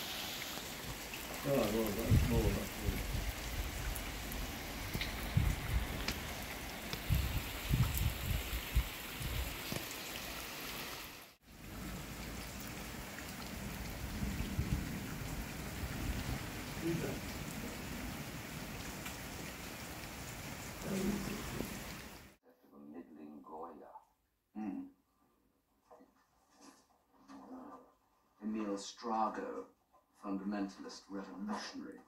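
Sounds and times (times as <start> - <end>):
heavy rain on water: 0.0 - 22.4.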